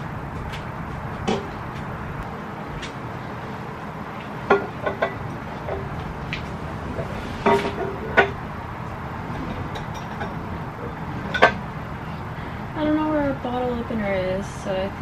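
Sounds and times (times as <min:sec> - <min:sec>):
steady low hum: 0:00.0 - 0:15.0
glass bottles clinking: 0:04.5 - 0:06.0, 0:06.9 - 0:08.4.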